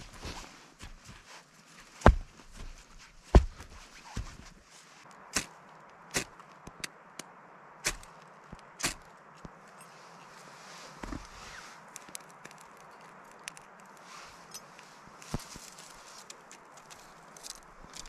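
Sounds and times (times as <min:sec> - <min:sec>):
sharp knocks and cracks: 0:02.0 - 0:04.4.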